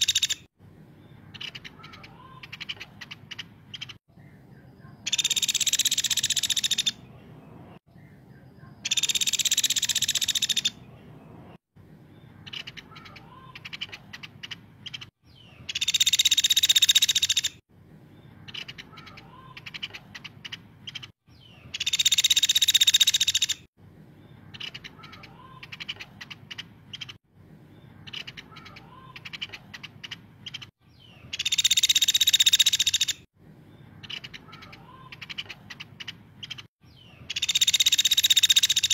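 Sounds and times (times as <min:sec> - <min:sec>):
woodpecker rattling trills: 0:00.0 - 0:00.5, 0:05.1 - 0:07.0, 0:08.8 - 0:10.8, 0:15.7 - 0:17.6, 0:21.7 - 0:23.7, 0:31.3 - 0:33.2, 0:37.3 - 0:38.9
sharp ticking bird notes: 0:00.0 - 0:11.6, 0:12.2 - 0:17.6, 0:18.2 - 0:23.7, 0:24.4 - 0:27.2, 0:27.8 - 0:38.9.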